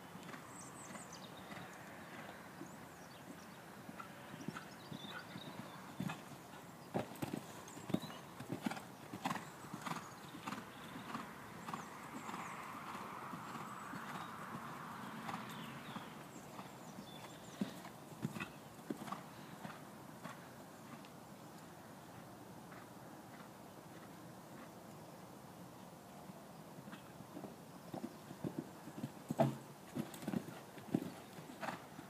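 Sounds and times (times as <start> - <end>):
horse hooves thudding: 27.3 - 31.8.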